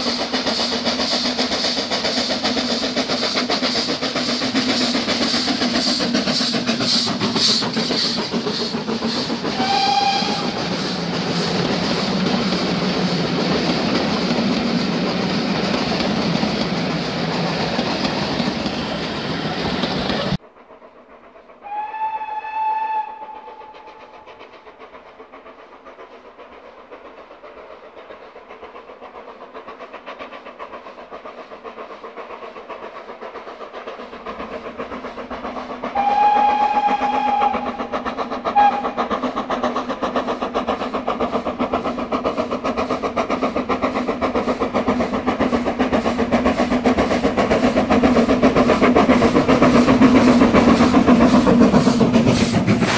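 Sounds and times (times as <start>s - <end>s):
wheels clattering on rails: 0.0s - 21.6s, 23.1s - 52.9s
faint train rumble: 0.0s - 52.9s
steam locomotive passing: 0.0s - 52.9s
distant steam whistle: 6.4s - 12.2s, 21.6s - 24.4s, 35.9s - 39.1s
steam whistle blast: 9.5s - 10.6s, 21.6s - 24.1s, 35.9s - 37.8s, 38.6s - 39.0s.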